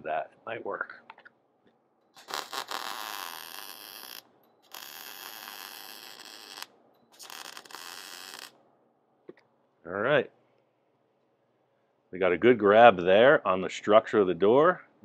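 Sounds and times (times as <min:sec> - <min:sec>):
welder arc crackling and hissing: 0:02.2 - 0:08.6.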